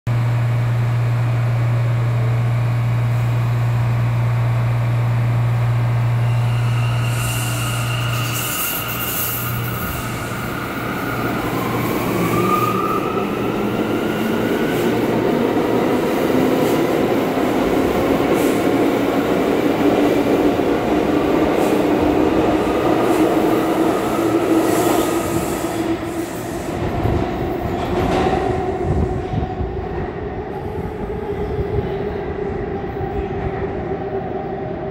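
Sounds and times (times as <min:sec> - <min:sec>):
train wheels clattering on rail: 0:26.4 - 0:29.4.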